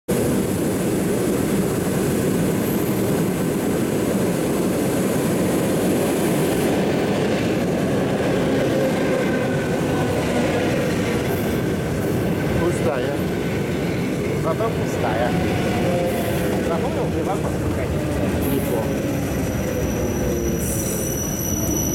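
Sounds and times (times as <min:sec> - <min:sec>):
electric train rumble and hiss: 0:00.1 - 0:21.9.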